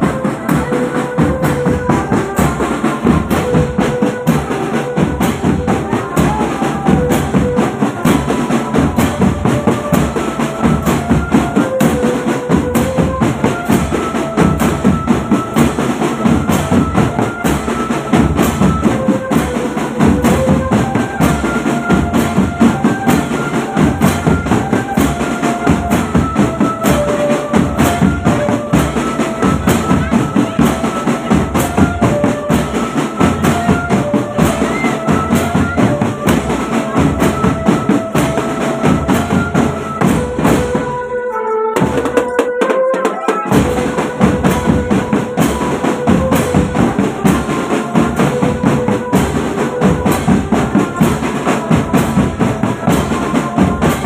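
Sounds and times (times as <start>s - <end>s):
snare drums: 0.0s - 54.0s.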